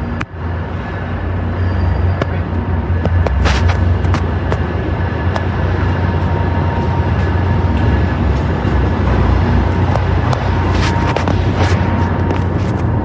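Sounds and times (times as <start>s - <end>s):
diesel trains idling: 0.0s - 13.0s
footsteps on stairs: 3.0s - 5.5s.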